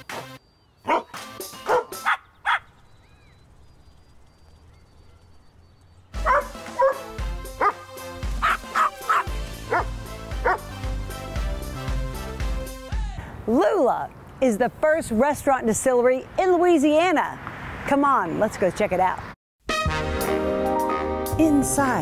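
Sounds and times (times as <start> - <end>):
dogs barking: 0.8 - 2.7, 6.2 - 10.7.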